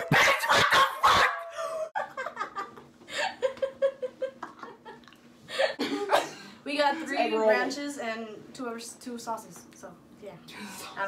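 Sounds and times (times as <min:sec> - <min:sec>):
young women laughing: 0:00.0 - 0:06.3.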